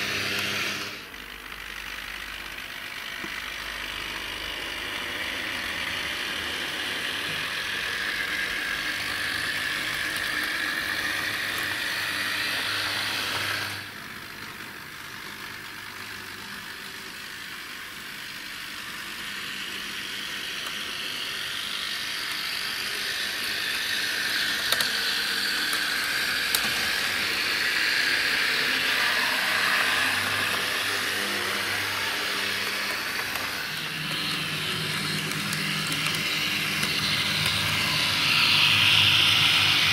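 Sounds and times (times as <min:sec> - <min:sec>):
model tram motors whirring: 0:00.0 - 0:39.9.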